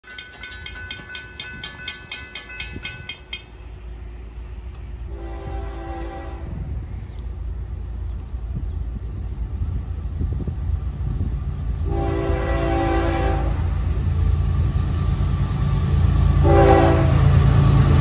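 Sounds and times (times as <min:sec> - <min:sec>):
crossing bell ringing: 0:00.0 - 0:03.7
train rumble: 0:00.0 - 0:18.0
train horn blast: 0:05.1 - 0:06.8, 0:11.8 - 0:13.8, 0:16.3 - 0:17.5.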